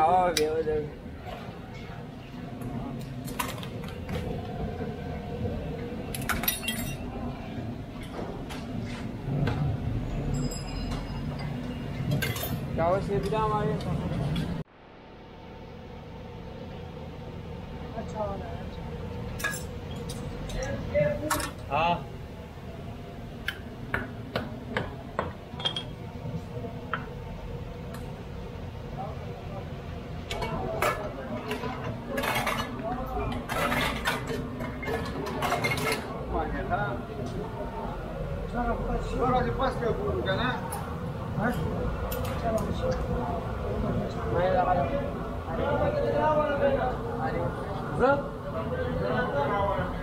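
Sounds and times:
low steady hum: 0.0s - 50.0s
metal teapots and cups clinking: 6.1s - 7.1s, 10.2s - 13.4s, 19.3s - 21.6s, 24.8s - 26.0s, 30.3s - 36.2s.

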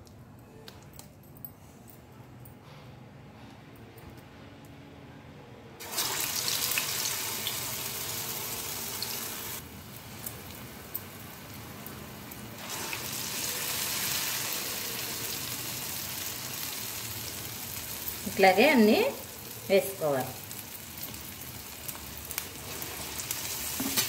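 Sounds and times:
batter sizzling in hot oil: 5.8s - 24.0s.

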